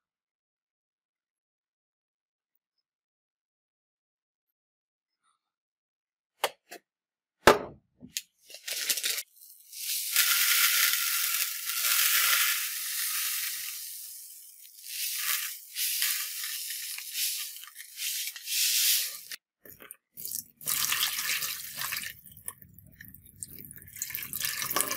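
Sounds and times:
loud knock: 7.4 - 7.8
powder pouring into plastic tub: 8.5 - 22.6, 23.2 - 24.9.

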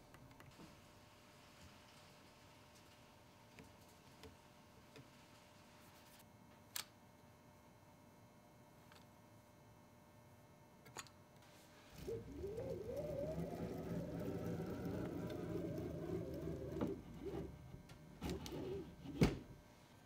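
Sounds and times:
ball nut whirring on screw: 12.0 - 19.0.

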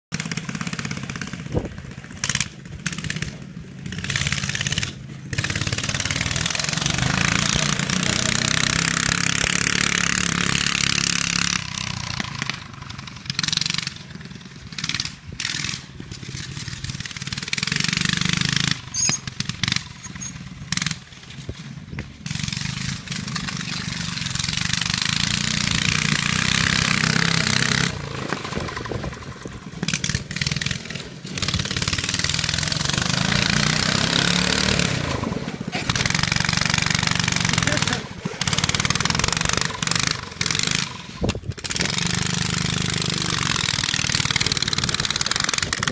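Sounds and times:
petrol engine revving: 0.1 - 45.9.

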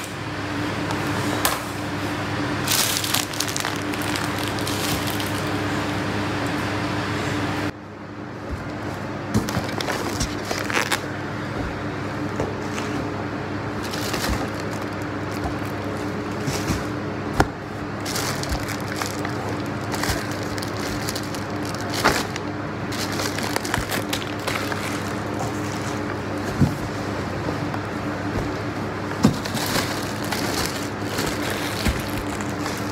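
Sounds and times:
steady low hum: 0.0 - 32.9
plastic bags crinkling: 2.6 - 5.7, 9.4 - 11.1, 13.8 - 16.6, 17.9 - 26.5, 29.1 - 32.9.

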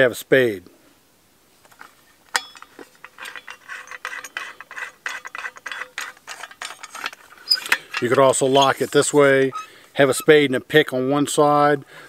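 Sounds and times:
metal tool clicking and scraping: 2.3 - 10.4.

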